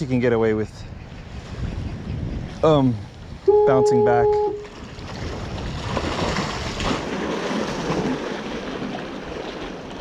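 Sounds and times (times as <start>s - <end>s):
wind on microphone: 0.0s - 7.2s
waves splashing on rocks: 4.7s - 10.0s.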